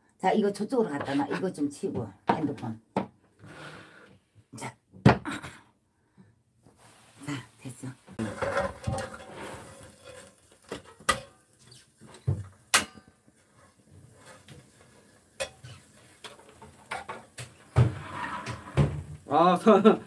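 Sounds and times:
metal spatula clinking on pan: 0:15.4 - 0:17.2.

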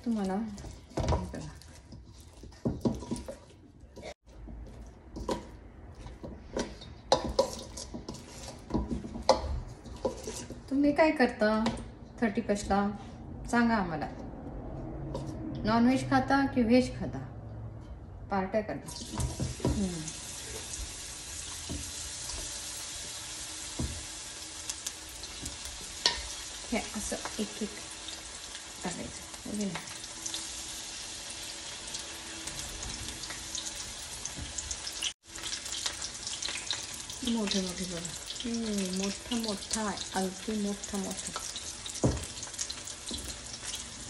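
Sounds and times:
hot oil sizzling: 0:00.0 - 0:03.3, 0:06.6 - 0:10.6, 0:18.9 - 0:44.0
metal spoon scraping a bowl: 0:05.2 - 0:10.7.

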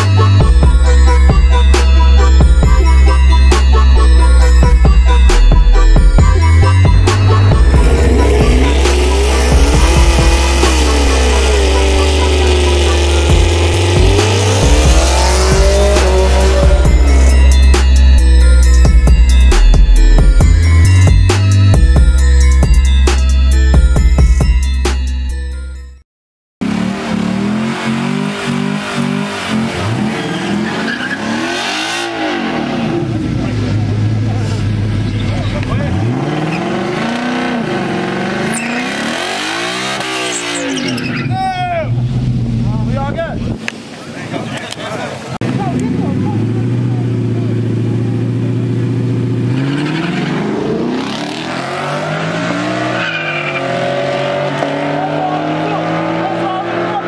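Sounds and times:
car engine revving: 0:00.0 - 0:23.6, 0:26.6 - 0:43.6, 0:45.4 - 0:57.0
music: 0:00.0 - 0:26.0
tyres spinning in burnout: 0:26.8 - 0:33.2.

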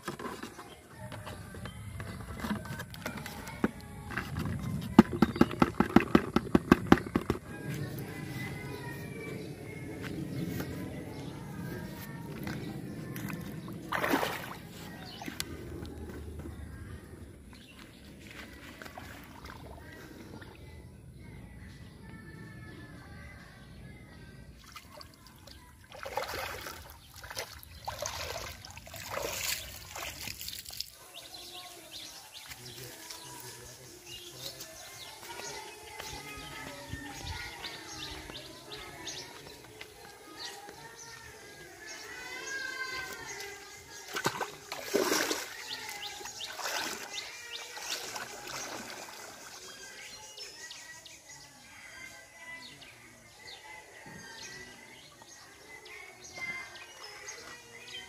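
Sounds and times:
water splashing from wading: 0:13.2 - 0:15.4, 0:24.6 - 0:31.0, 0:44.0 - 0:49.7.

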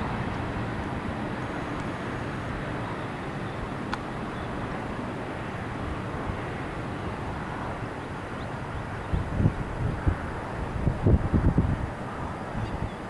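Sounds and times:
freight train wheels rumbling: 0:00.0 - 0:03.0.

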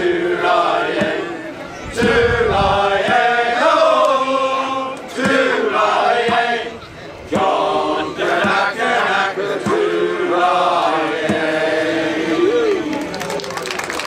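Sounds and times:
men singing in chorus: 0:00.0 - 0:12.9
steady beat: 0:00.0 - 0:12.9.

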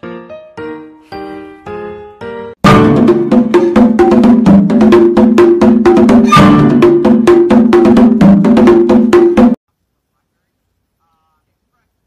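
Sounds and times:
upbeat music with fast beat: 0:02.6 - 0:09.6.

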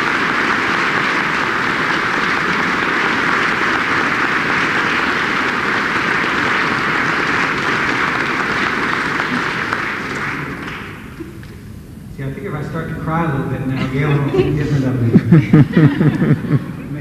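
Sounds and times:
audience applause: 0:00.0 - 0:11.2, 0:14.3 - 0:16.6.

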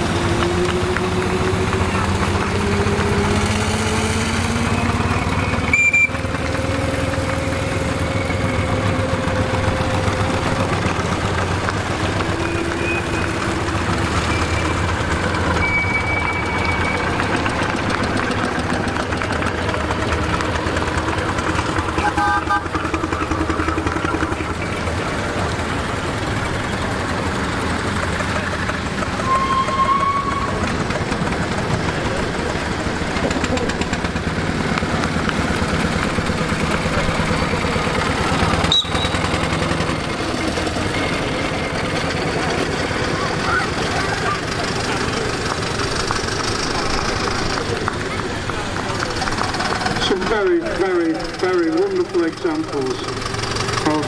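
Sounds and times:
miniature steam engines running: 0:00.0 - 0:54.0
high steam whistle peeps: 0:05.7 - 0:06.2, 0:15.5 - 0:17.2, 0:29.2 - 0:30.7, 0:38.6 - 0:39.3.

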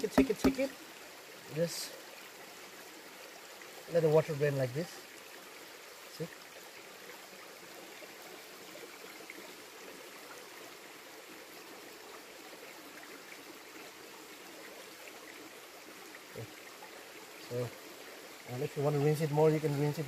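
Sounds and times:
stream water trickling: 0:00.0 - 0:20.0.

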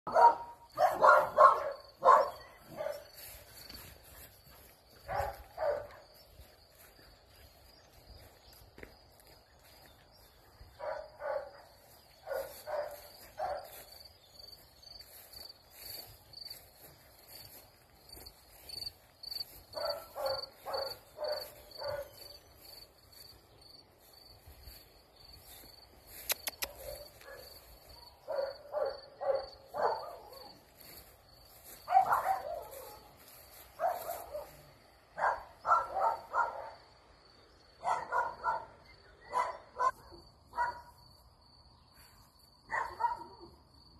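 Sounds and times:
dog barking: 0:00.1 - 0:03.2, 0:05.0 - 0:06.2, 0:10.7 - 0:14.0, 0:19.7 - 0:22.4, 0:26.4 - 0:31.0, 0:31.6 - 0:37.0, 0:37.8 - 0:41.0, 0:42.7 - 0:43.6
crickets chirping: 0:00.1 - 0:43.9.

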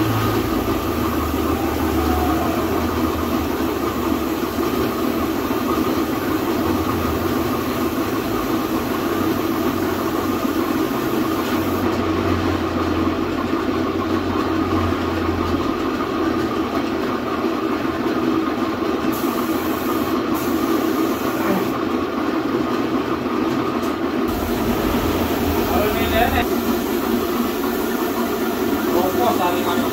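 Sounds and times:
machine-like drone: 0:00.0 - 0:06.0, 0:24.3 - 0:29.6
aerosol can spraying: 0:02.6 - 0:11.8, 0:19.1 - 0:21.8, 0:24.3 - 0:29.9.

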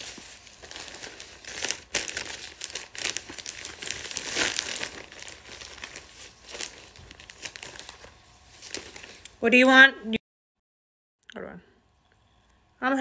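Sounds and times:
plastic packaging crinkling: 0:00.0 - 0:09.4.

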